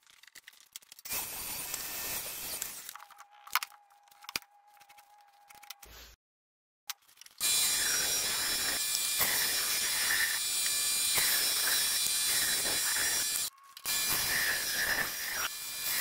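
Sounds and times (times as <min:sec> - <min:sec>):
band saw cutting wood: 0:07.4 - 0:16.0.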